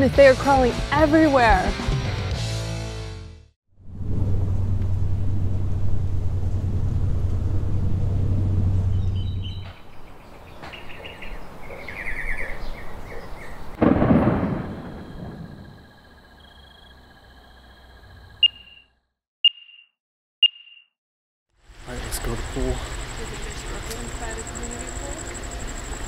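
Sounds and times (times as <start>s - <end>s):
low boom: 3.8s - 9.7s, 13.8s - 15.9s
short high beeps: 18.4s - 20.9s.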